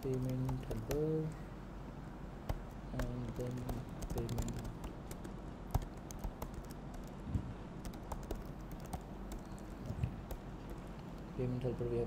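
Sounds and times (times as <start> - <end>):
typing on keyboard: 0.0 - 1.4, 2.5 - 7.2, 7.8 - 10.9.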